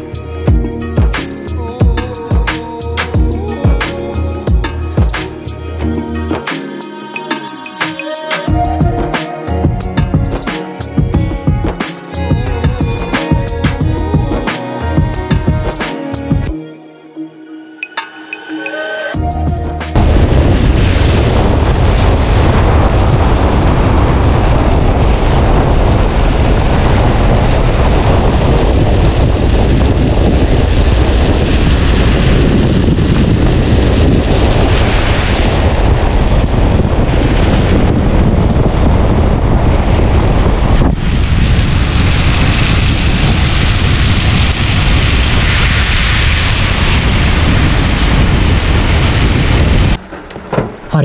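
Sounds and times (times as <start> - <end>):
wind buffeting microphone: 19.2 - 50.1.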